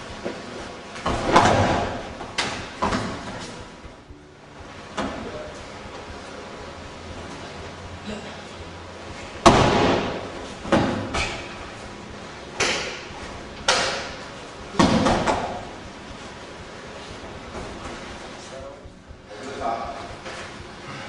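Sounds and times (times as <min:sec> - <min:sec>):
bodies slamming onto padded mat: 0:09.4 - 0:11.5.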